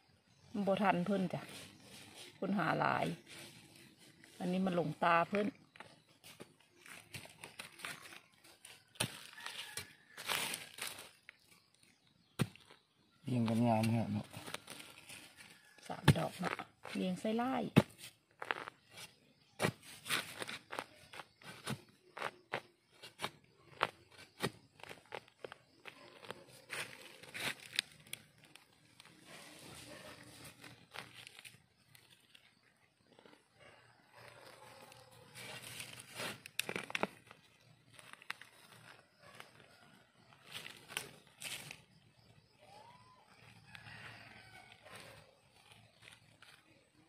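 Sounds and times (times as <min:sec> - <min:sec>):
dry leaves and twigs crackling: 0:00.4 - 0:47.0
soil crumbling: 0:01.0 - 0:47.0
stick scraping into earth: 0:08.7 - 0:11.1, 0:15.9 - 0:32.5, 0:34.2 - 0:37.3.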